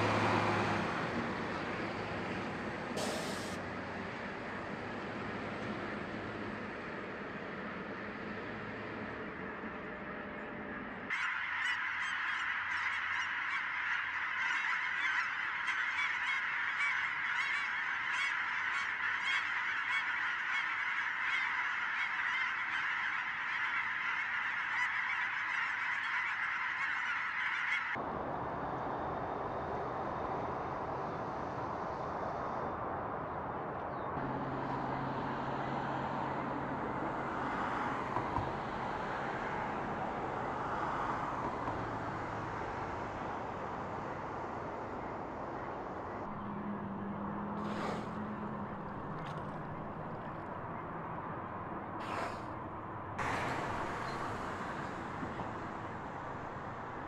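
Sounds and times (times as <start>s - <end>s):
steady background noise: 0.0s - 57.0s
geese honking: 9.3s - 28.0s.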